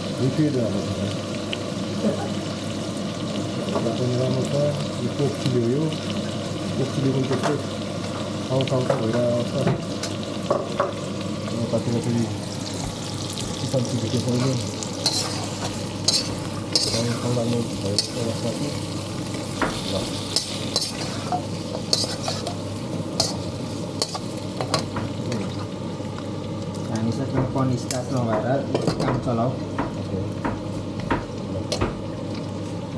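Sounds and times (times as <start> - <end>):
meat sizzling in a pan: 0.0 - 32.9
spatula scraping a pan: 14.4 - 17.4, 19.7 - 22.6.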